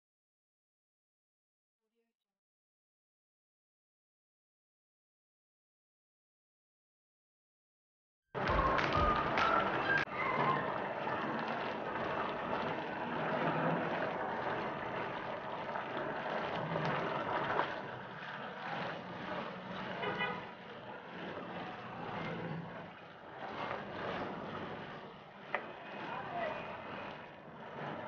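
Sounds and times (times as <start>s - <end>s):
gravy boiling and sizzling: 8.4s - 28.0s.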